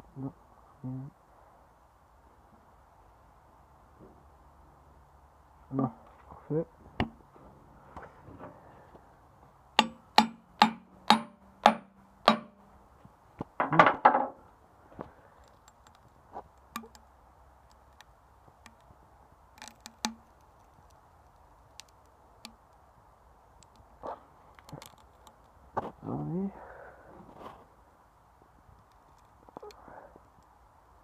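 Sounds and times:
knife hammered into wooden plank: 9.8 - 12.6.

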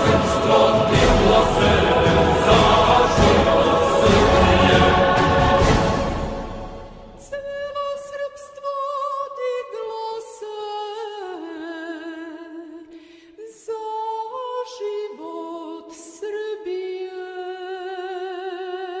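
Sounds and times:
person singing: 0.0 - 6.4.

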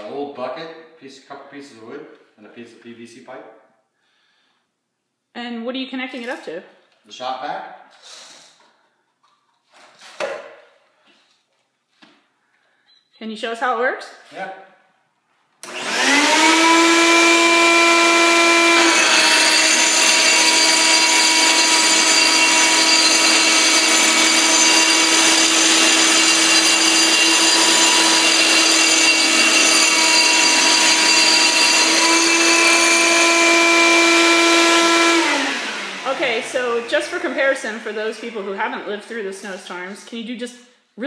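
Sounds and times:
grinder motor whining: 15.6 - 38.4
shop vac running: 15.6 - 38.8.

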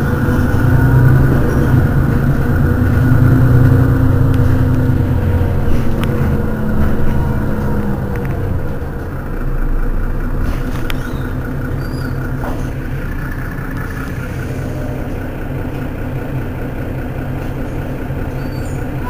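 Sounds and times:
bus engine idling: 0.0 - 19.0.

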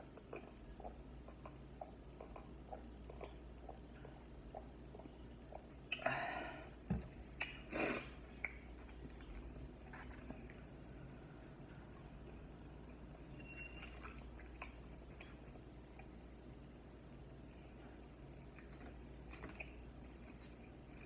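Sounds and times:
person chewing food: 0.0 - 6.0, 13.8 - 16.5, 17.4 - 21.0.

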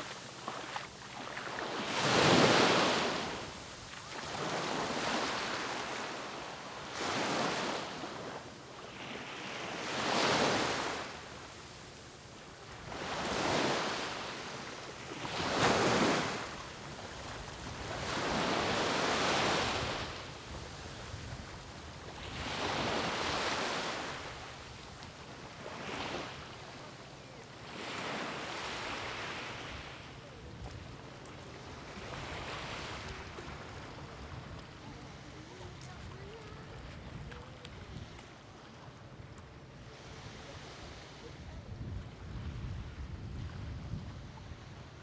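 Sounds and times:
sea waves breaking on beach: 0.0 - 26.6.

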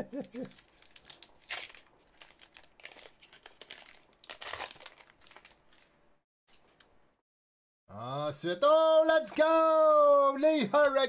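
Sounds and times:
foil wrappers crinkling: 0.2 - 6.0.

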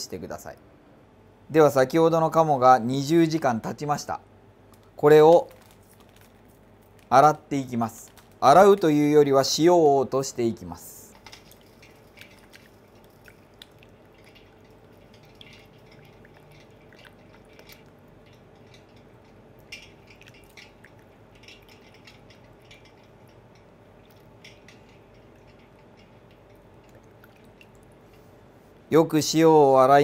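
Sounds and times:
water splashing and dripping: 11.3 - 23.3, 24.0 - 28.2.

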